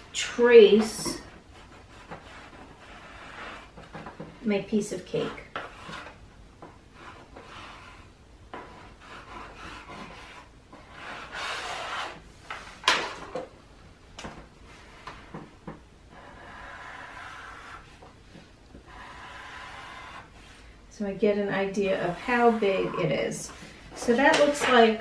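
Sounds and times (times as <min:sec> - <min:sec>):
marker scratching on paper: 0:00.7 - 0:06.2, 0:06.9 - 0:12.2, 0:16.1 - 0:20.6, 0:21.8 - 0:23.6
paper rubbed on tabletop: 0:16.1 - 0:18.0.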